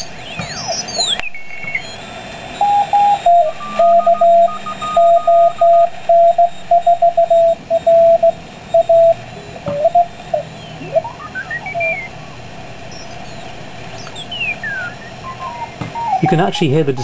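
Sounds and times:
fainter higher morse signal: 0:00.0 - 0:17.0
morse code beat tone: 0:02.6 - 0:12.2, 0:14.5 - 0:17.0
radio band hiss: 0:07.3 - 0:17.0.

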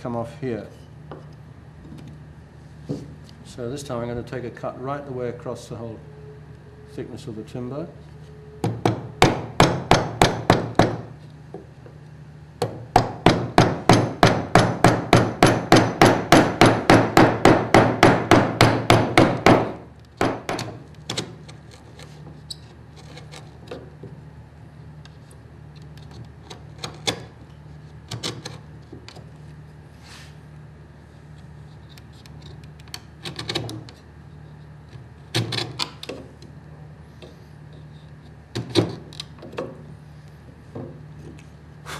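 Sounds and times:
mallet striking chisel: 0:12.6 - 0:20.7.

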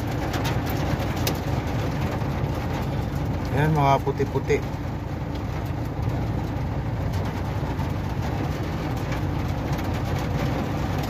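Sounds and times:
hailstones ticking: 0:00.0 - 0:11.0
rain on vehicle roof: 0:00.0 - 0:11.0.

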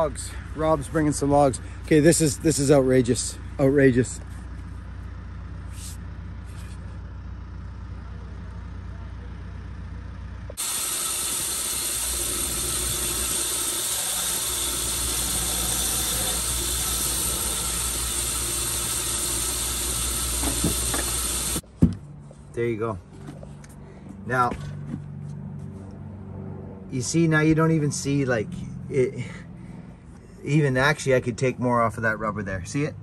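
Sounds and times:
vehicle engine idling: 0:00.0 - 0:21.6
power grinder grinding rubber: 0:10.5 - 0:21.6.

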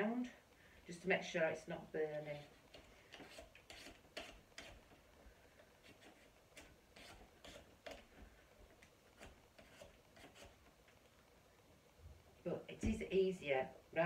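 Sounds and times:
vegetable peeler scraping squash: 0:02.2 - 0:05.0, 0:05.8 - 0:08.1, 0:09.1 - 0:10.7.

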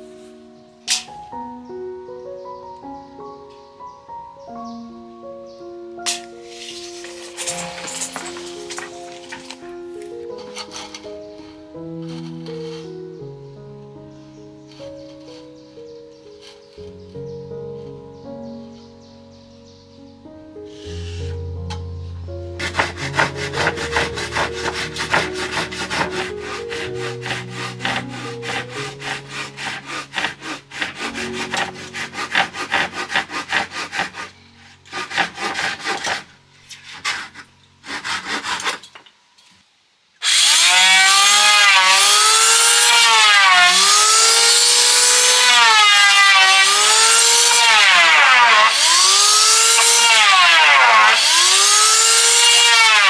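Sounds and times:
hand saw cutting wood: 0:06.1 - 0:09.6, 0:10.4 - 0:12.9, 0:22.6 - 0:39.0, 0:40.2 - 0:53.0.

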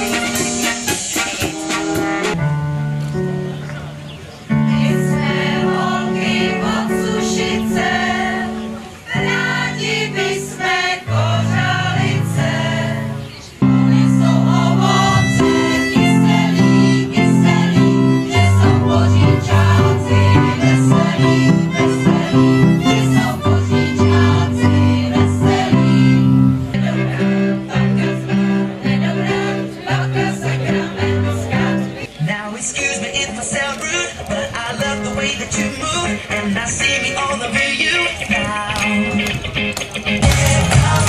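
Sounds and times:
electronic keyboard: 0:00.0 - 0:41.0
violin: 0:03.7 - 0:32.4
women's choir singing: 0:04.5 - 0:35.6.

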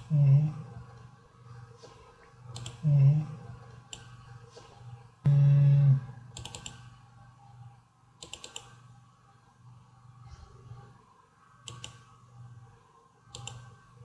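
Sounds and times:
person humming: 0:00.0 - 0:00.8, 0:02.8 - 0:03.4, 0:05.3 - 0:06.2
faint low hum: 0:00.0 - 0:14.0
computer mouse clicking: 0:01.8 - 0:02.9, 0:03.7 - 0:04.7, 0:06.3 - 0:07.0, 0:08.2 - 0:08.8, 0:11.6 - 0:12.2, 0:13.3 - 0:13.8.

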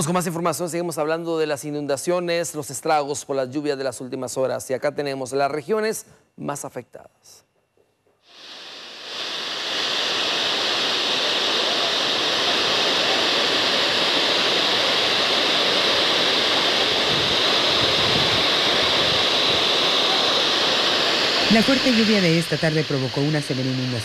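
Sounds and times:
torrent of water rushing: 0:08.4 - 0:24.0.

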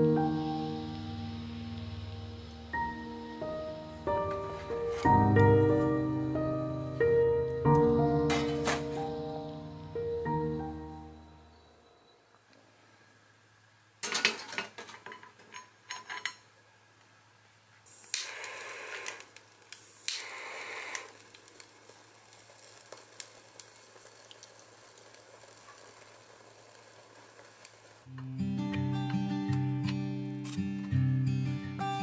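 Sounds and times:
fuel tablets burning faintly: 0:00.0 - 0:06.8, 0:17.0 - 0:28.2
small ticks: 0:18.1 - 0:26.2.

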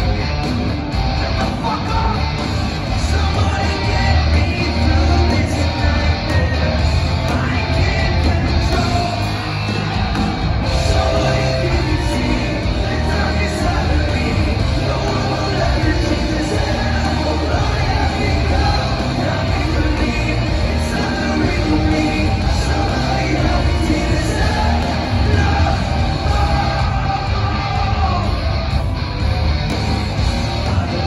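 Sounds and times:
bass guitar: 0:00.0 - 0:31.0
distorted electric guitars: 0:00.0 - 0:31.0
drums: 0:00.0 - 0:31.0
person singing: 0:10.6 - 0:28.5.

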